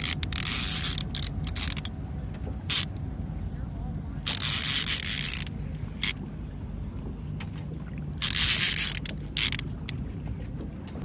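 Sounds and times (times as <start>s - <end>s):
low hum on boat: 0.0s - 11.0s.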